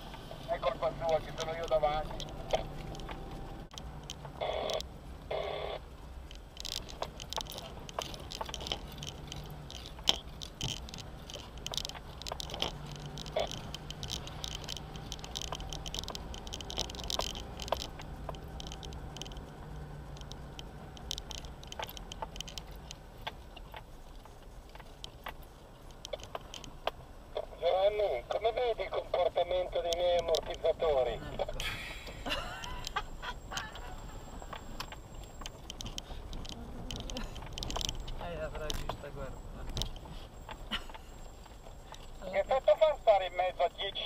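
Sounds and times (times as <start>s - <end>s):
vehicle driving over gravel: 0.0s - 32.2s.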